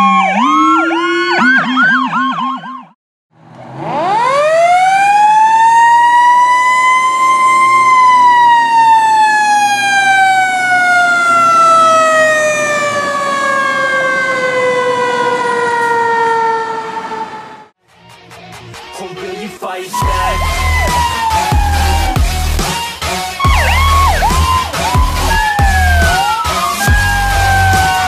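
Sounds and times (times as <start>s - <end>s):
mechanical siren wailing: 0.0s - 3.0s, 3.6s - 17.7s, 20.0s - 28.0s.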